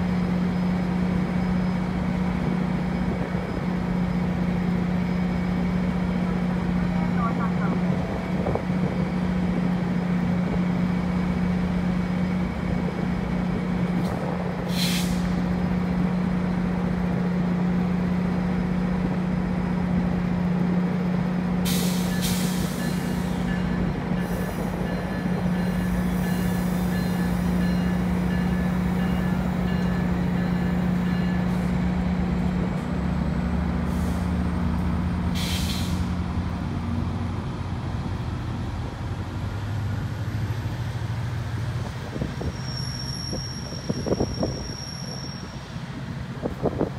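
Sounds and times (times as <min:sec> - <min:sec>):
train humming: 0:00.0 - 0:46.9
train rumbling: 0:00.0 - 0:46.9
air hissing: 0:14.7 - 0:15.4.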